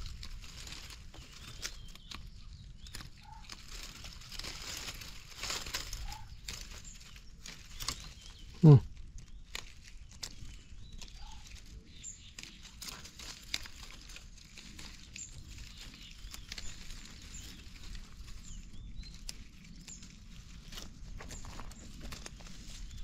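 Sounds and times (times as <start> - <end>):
rustling through dry leaves: 0.0 - 23.0.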